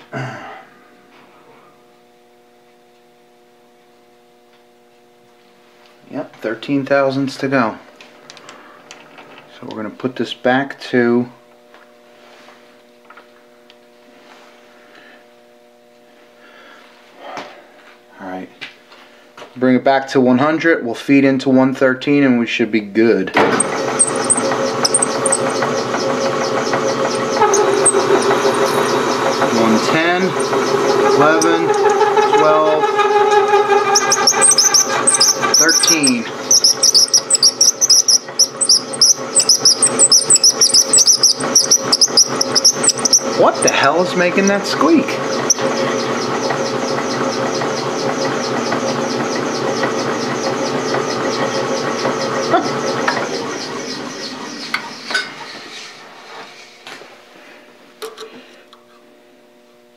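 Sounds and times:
lathe humming: 23.4s - 56.4s
high-pitched repeating squeak: 23.6s - 43.9s, 45.3s - 49.7s.

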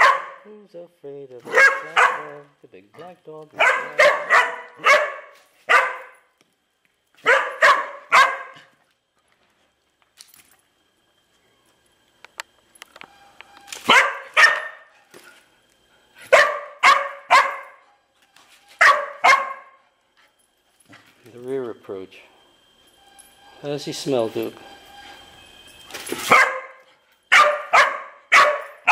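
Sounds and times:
dog barking: 0.0s - 0.5s, 1.4s - 2.4s, 3.6s - 6.2s, 7.2s - 8.7s, 13.8s - 14.9s, 16.3s - 17.8s, 18.8s - 19.8s, 26.3s - 28.9s.

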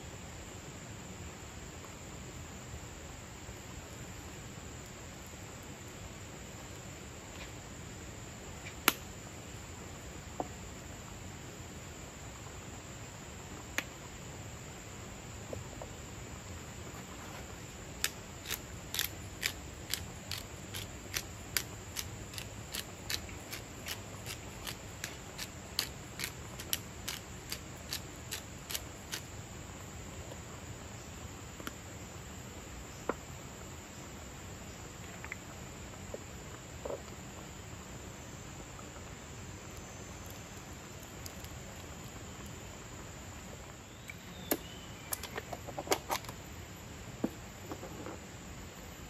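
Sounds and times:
background hiss: 0.0s - 49.0s.

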